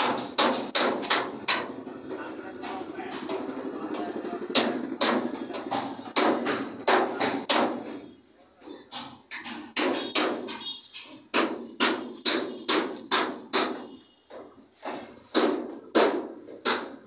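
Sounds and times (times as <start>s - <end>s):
sharp knocks: 0.0s - 1.8s, 4.5s - 8.1s, 8.9s - 17.0s.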